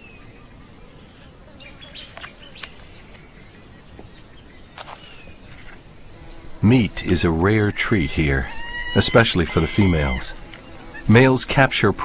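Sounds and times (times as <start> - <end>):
high-pitched insect chirring: 4.8 - 12.0.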